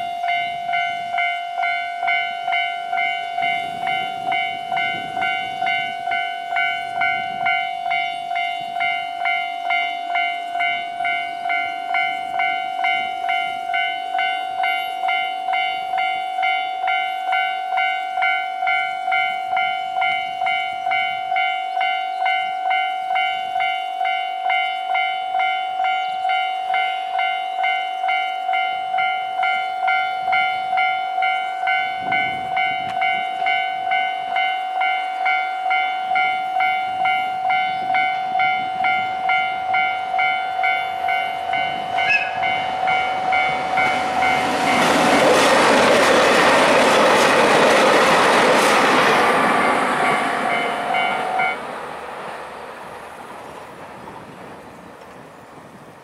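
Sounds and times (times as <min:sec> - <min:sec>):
train whistle: 0:00.0 - 0:44.8
level crossing warning bell: 0:00.0 - 0:54.6.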